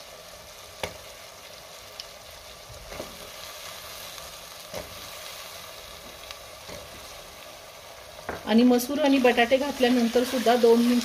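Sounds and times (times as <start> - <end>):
oil sizzling in a pressure cooker: 0.0 - 11.0.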